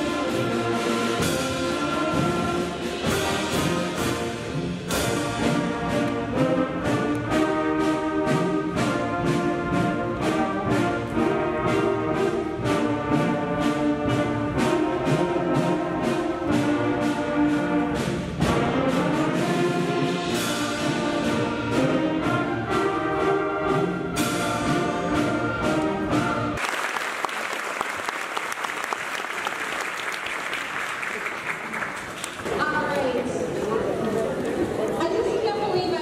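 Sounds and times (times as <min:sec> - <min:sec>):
concert band playing: 0:00.0 - 0:26.7
audience applauding: 0:26.6 - 0:34.7.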